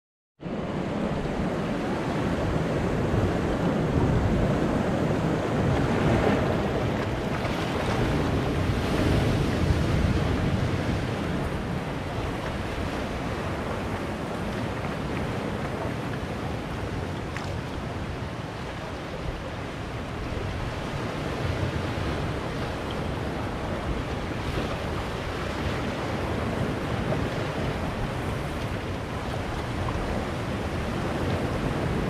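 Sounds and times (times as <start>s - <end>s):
sea surf washing among boulders: 0.4s - 32.0s.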